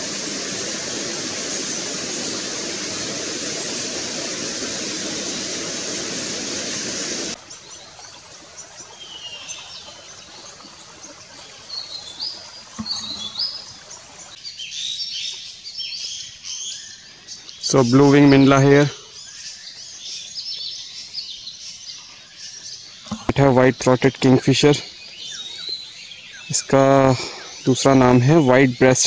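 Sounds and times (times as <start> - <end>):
steady rushing noise: 0.0 - 7.4
small birds chirping and whistling: 1.0 - 29.0.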